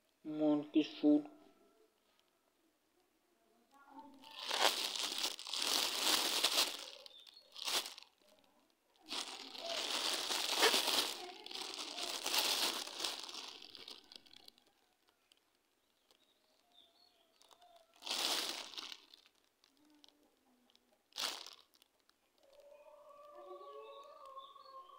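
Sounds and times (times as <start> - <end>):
plastic wrappers crinkling: 4.1 - 22.6.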